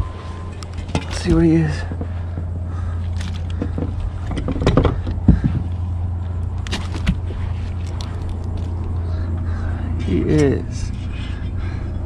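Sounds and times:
steady low hum: 0:00.0 - 0:12.0
knocks and rattles: 0:03.1 - 0:05.7.

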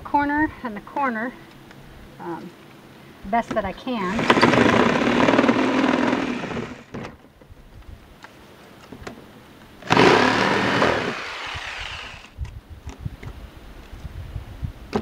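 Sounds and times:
electric jigsaw cutting plastic: 0:04.1 - 0:06.9, 0:09.8 - 0:12.4.

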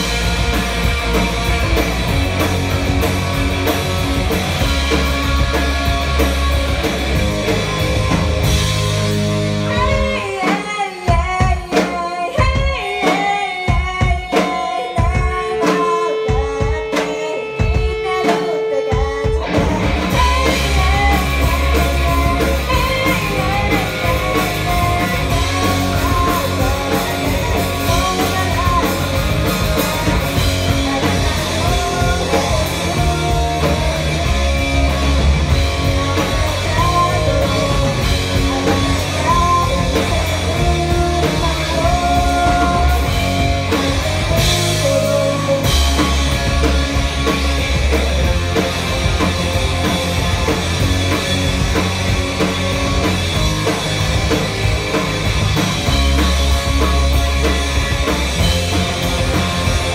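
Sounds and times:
bass guitar: 0:00.0 - 0:11.7, 0:19.2 - 0:59.9
drum kit: 0:00.0 - 0:59.9
electric guitar: 0:00.0 - 0:59.9
person singing: 0:06.9 - 0:46.8.

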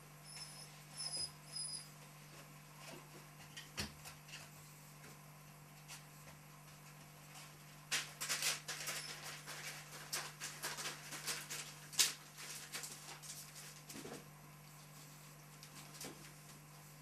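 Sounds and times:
newspaper rustling and crinkling: 0:07.9 - 0:14.0.

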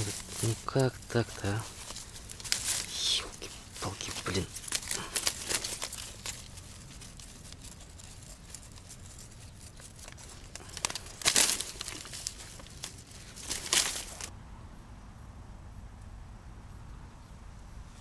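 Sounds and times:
rustling and crinkling handling noise: 0:00.0 - 0:14.3
low steady background noise: 0:00.0 - 0:18.0.

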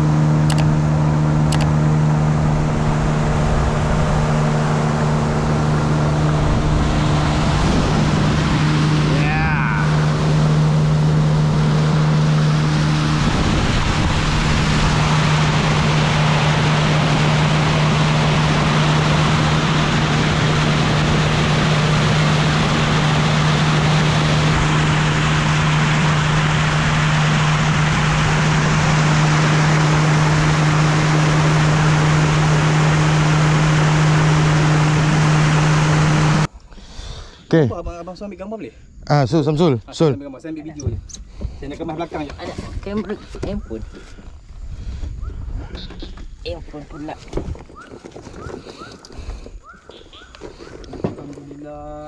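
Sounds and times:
water spray rushing along hull: 0:00.0 - 0:36.5
outboard motor running: 0:00.0 - 0:37.3, 0:40.1 - 0:52.0.

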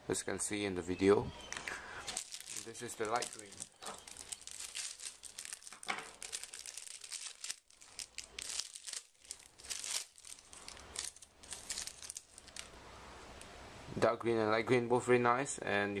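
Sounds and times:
plastic packaging crinkling: 0:02.0 - 0:12.8.

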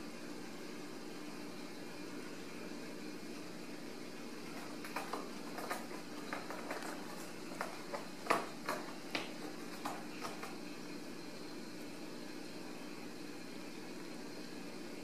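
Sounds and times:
cats wrestling on cardboard: 0:04.5 - 0:10.7.

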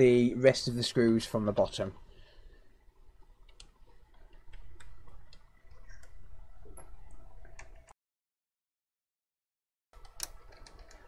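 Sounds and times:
screwdriver clicks and ticks: 0:10.0 - 0:11.0.

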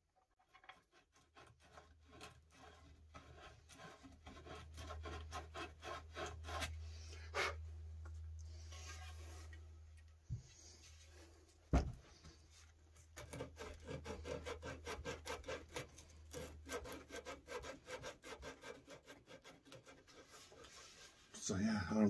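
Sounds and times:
hand sanding wood: 0:01.0 - 0:07.6, 0:13.2 - 0:21.2.

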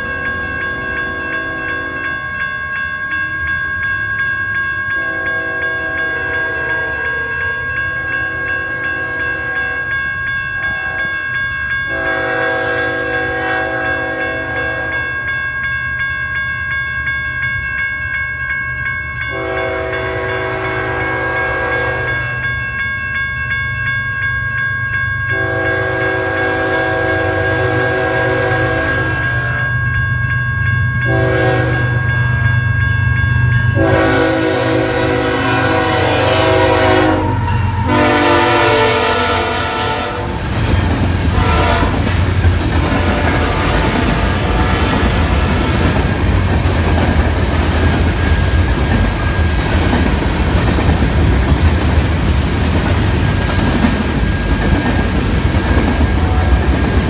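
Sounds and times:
crossing warning bell ringing: 0:00.0 - 0:57.0
locomotive air horn blasts: 0:05.0 - 0:07.3, 0:11.9 - 0:15.0, 0:19.3 - 0:22.2, 0:25.3 - 0:29.6, 0:31.1 - 0:31.9, 0:33.8 - 0:40.4, 0:41.3 - 0:42.1, 0:42.9 - 0:45.9.

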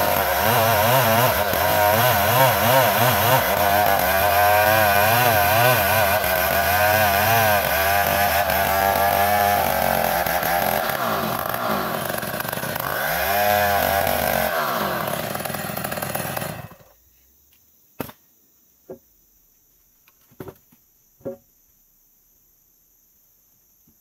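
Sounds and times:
chainsaw cutting through wood: 0:00.0 - 0:16.9.

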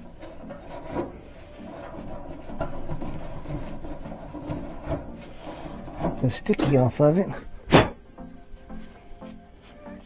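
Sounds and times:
rag scrubbing metal shaft: 0:00.0 - 0:08.0.

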